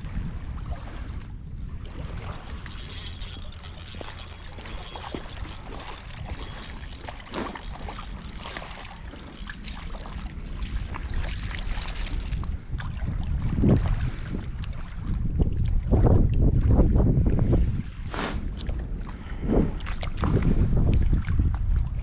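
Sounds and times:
wind buffeting microphone: 0.0 - 22.0
fish thrashing and splashing water: 0.7 - 13.2.

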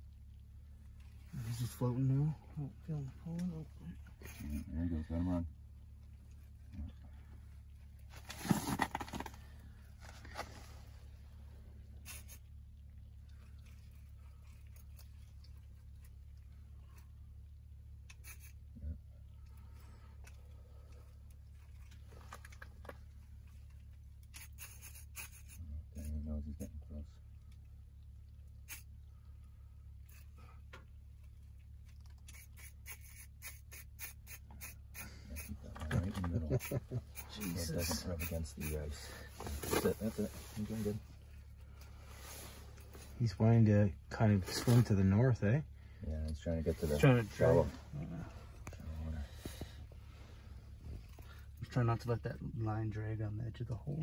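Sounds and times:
fishing reel drag rasping: 24.3 - 25.6, 32.3 - 35.5.

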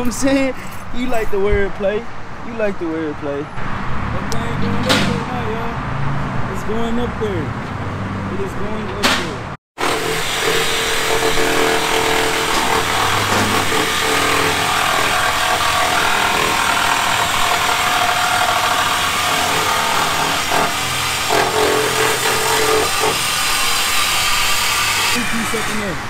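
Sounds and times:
power tool cutting exhaust pipe: 9.8 - 26.0.

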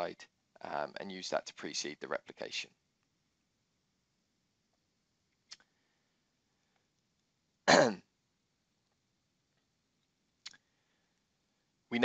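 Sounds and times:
man clearing throat: 7.7 - 8.0.

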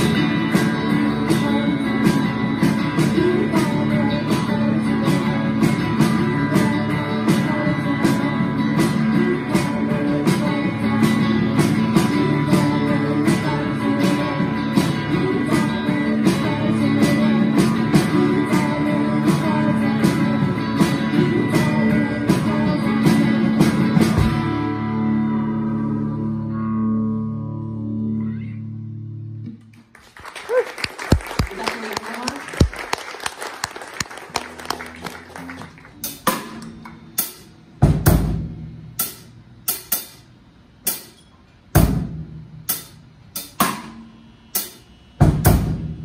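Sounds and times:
drums keeping a beat: 0.0 - 25.2, 31.0 - 46.0
electric guitar: 0.0 - 29.9, 34.0 - 38.0.

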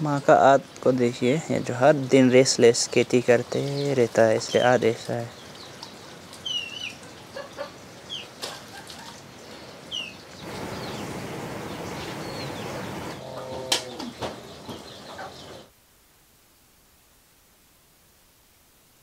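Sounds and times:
water drips and splashes: 0.2 - 13.2
small birds chirping: 0.2 - 15.7
wood fire hissing and crackling: 9.3 - 13.2.

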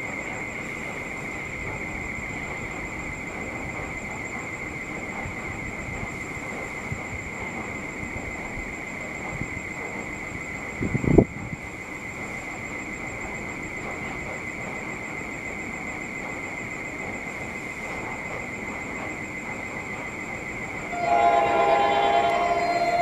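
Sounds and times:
steady high whine: 15.3 - 23.0
locomotive chime air horn: 20.9 - 23.0.

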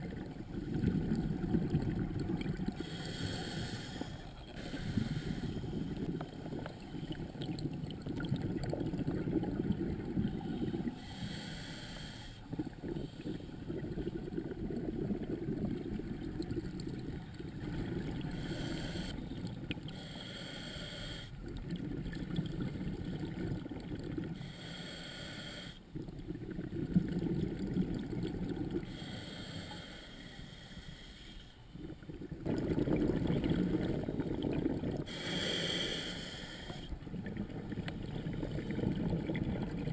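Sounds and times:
exhaled bubbles rumbling: 0.0 - 3.3, 4.0 - 11.0, 12.4 - 20.0, 21.3 - 24.4, 25.9 - 29.0, 31.7 - 35.2, 36.9 - 39.9
regulator hissing inhale: 2.8 - 6.0, 10.5 - 13.6, 18.2 - 19.2, 19.9 - 21.4, 24.4 - 25.8, 28.8 - 31.6, 35.0 - 37.0.

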